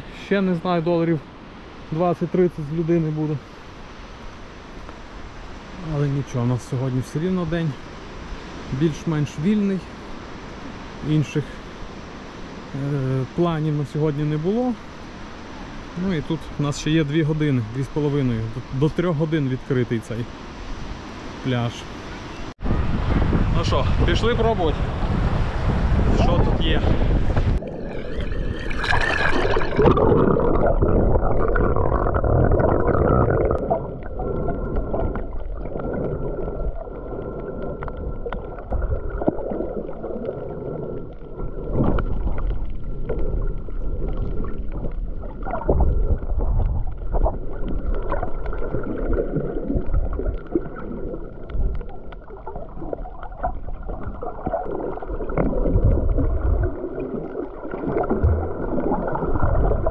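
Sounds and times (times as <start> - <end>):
muffled underwater water sloshing: 25.3 - 59.9.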